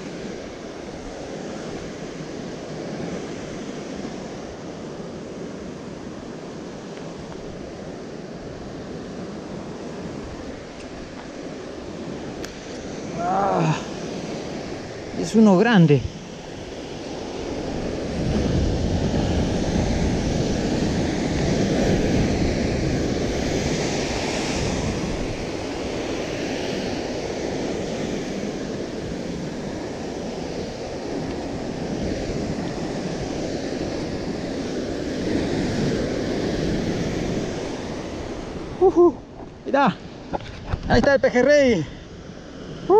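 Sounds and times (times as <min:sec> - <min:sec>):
wind buffeting microphone: 0:00.0 - 0:42.9
surf breaking over rocks: 0:09.6 - 0:41.9.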